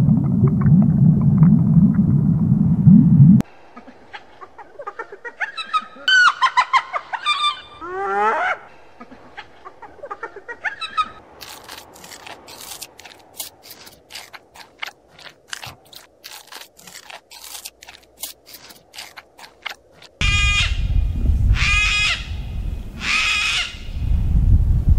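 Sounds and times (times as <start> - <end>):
panda chewing bamboo: 11.3 - 20.2.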